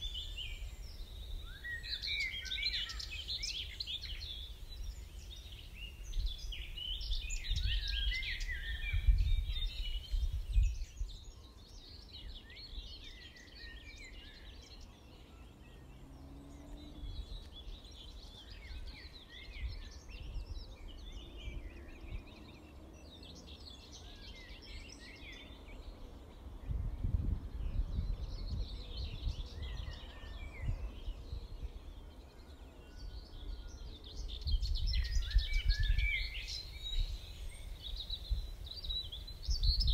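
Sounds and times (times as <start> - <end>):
birds singing and chirping: 0.0 - 39.9
wind gusting on microphone: 3.5 - 11.4, 26.3 - 32.2, 33.4 - 39.9.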